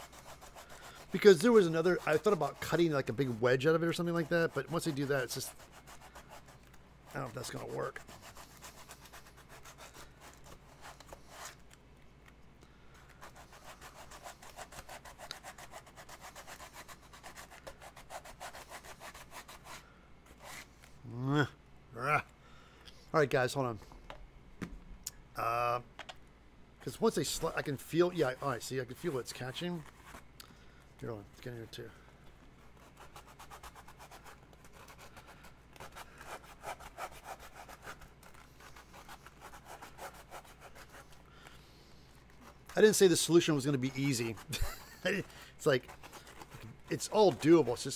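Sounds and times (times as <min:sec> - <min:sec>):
hand sanding foam: 0:00.0 - 0:11.6, 0:13.2 - 0:20.8, 0:32.6 - 0:47.9.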